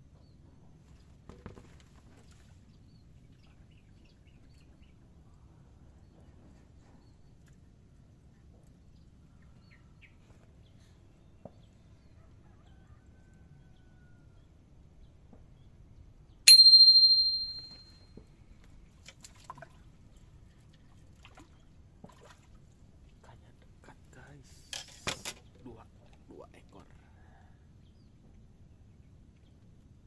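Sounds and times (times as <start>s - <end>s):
small metal bell ringing: 16.5s - 18.0s.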